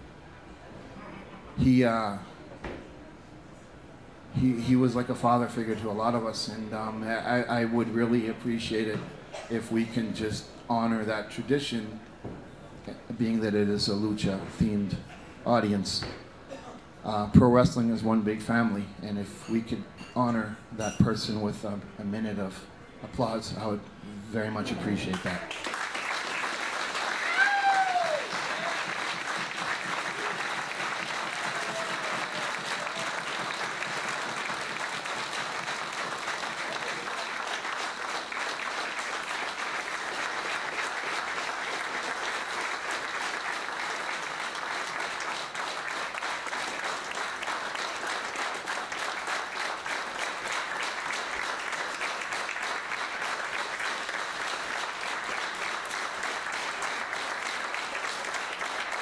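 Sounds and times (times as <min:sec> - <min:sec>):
crowd applauding: 0:25.1 - 0:59.0.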